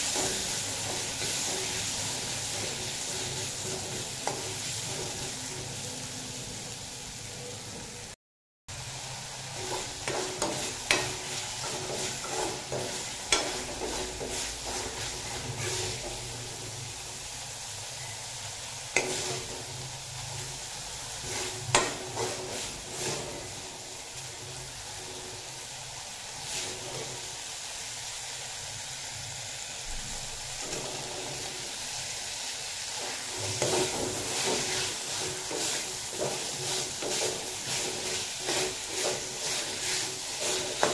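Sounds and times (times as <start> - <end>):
spatula stirring and scraping: 0.0 - 6.0, 9.4 - 17.0, 18.9 - 25.7, 26.3 - 27.3, 30.5 - 31.9, 32.9 - 40.9
food sizzling in a pan: 0.0 - 40.9.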